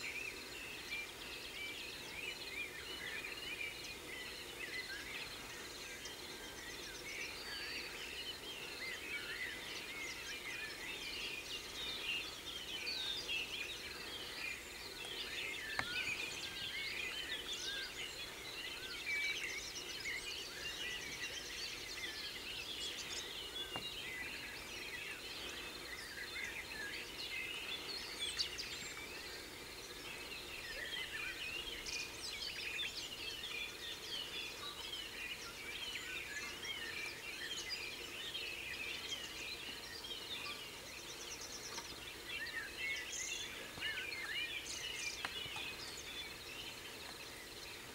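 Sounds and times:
chorus of birds singing: 0.0s - 47.9s
low background noise: 0.0s - 47.9s
faint clicks: 15.0s - 16.2s.

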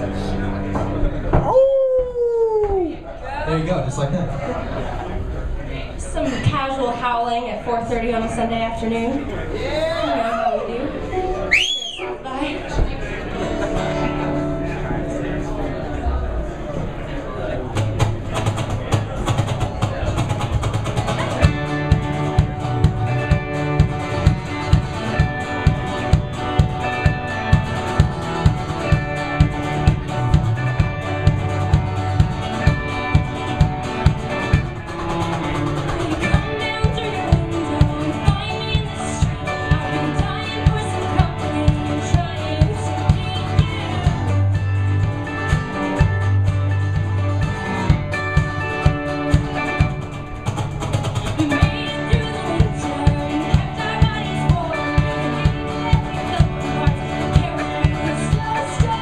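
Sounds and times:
electric guitar: 0.0s - 3.0s, 7.9s - 59.0s
acoustic guitar: 0.0s - 59.0s
woman singing: 35.8s - 44.5s, 51.3s - 59.0s.

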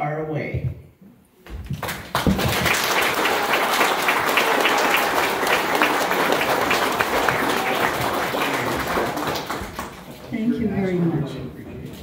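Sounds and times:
audience applauding: 1.8s - 10.4s.

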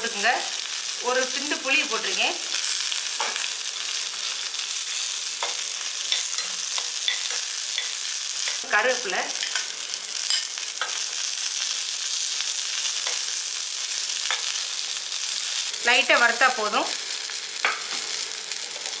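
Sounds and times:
food sizzling in oil: 0.0s - 19.0s.

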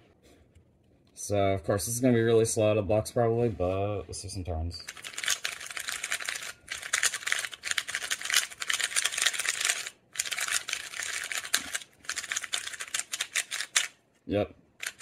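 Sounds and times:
plastic puzzle cube clicking: 4.9s - 14.0s, 14.8s - 15.0s.

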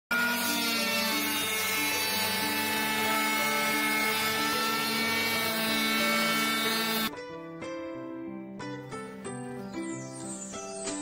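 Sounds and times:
orbital sander sanding wood: 0.1s - 7.1s.

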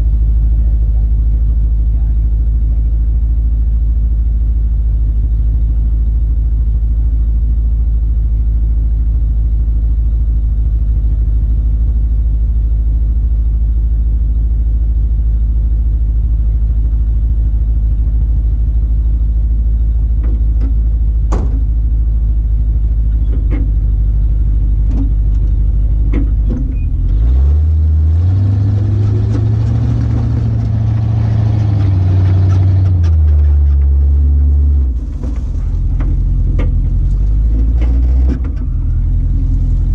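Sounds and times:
truck engine idling and revving: 0.0s - 39.9s.

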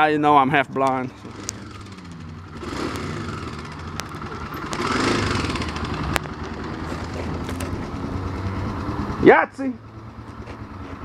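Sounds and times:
vehicle engine idling: 0.0s - 11.0s
sharp clicks: 2.9s - 7.8s.

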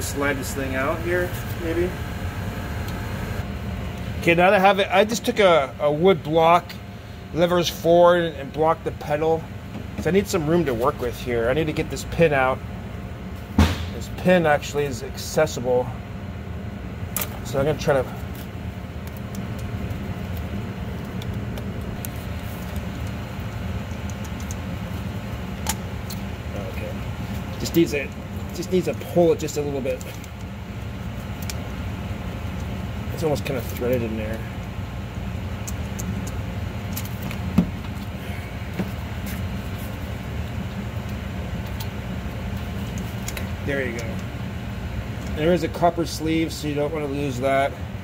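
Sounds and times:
low mechanical hum: 0.0s - 48.0s.

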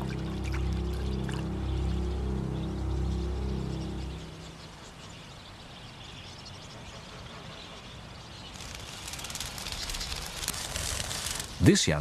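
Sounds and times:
water splashing: 0.0s - 1.5s
faint outdoor background: 0.0s - 12.0s.

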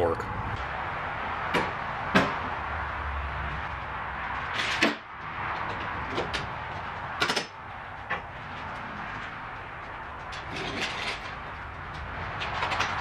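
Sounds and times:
workshop background noise: 0.0s - 13.0s
tools and car parts knocking: 1.4s - 2.6s, 4.5s - 8.8s, 9.8s - 13.0s.

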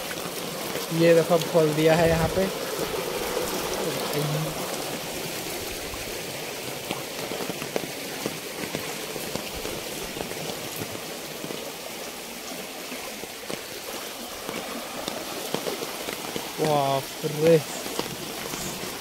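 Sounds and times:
heavy rain on floodwater: 0.0s - 19.0s.

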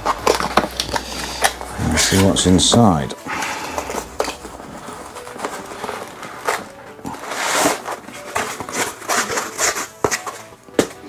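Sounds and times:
foam insert scraping cardboard: 3.7s - 10.4s.

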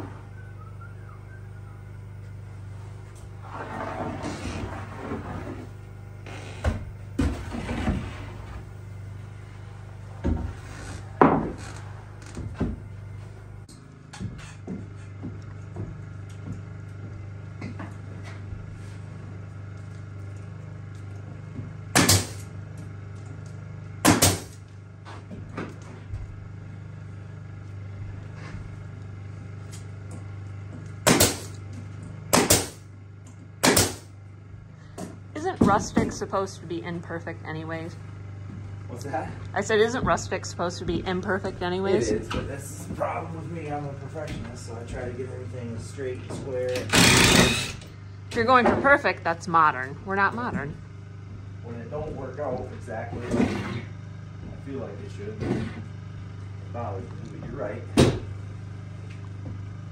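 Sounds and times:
steady low hum: 0.0s - 59.9s
pneumatic nailer firing: 21.9s - 22.5s, 24.0s - 24.7s, 31.0s - 31.6s, 32.3s - 32.9s, 33.6s - 34.2s, 46.7s - 48.0s.

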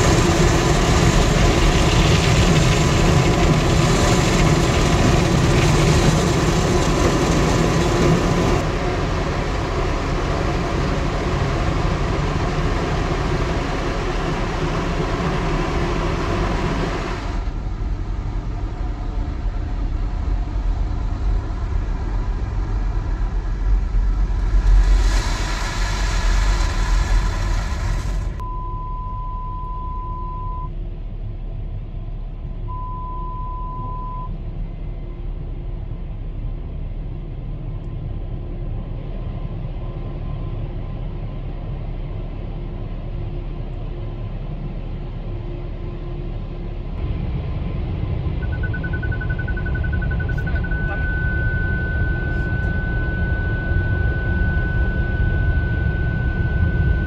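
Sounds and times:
water jets hissing on car: 0.0s - 17.4s, 23.9s - 28.4s
parking sensor beeping: 28.4s - 30.7s, 32.7s - 34.3s, 48.4s - 57.0s.

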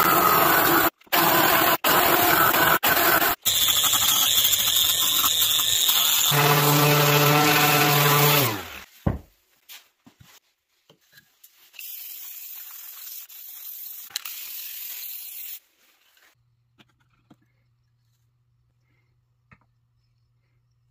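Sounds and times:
orbital sander spinning down: 2.4s - 8.8s.

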